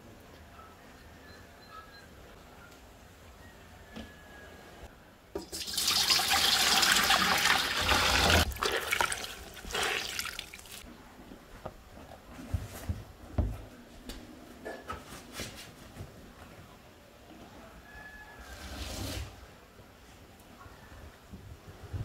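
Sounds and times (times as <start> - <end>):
water splashing into a bowl: 5.4 - 10.8
water dripping: 5.4 - 10.9.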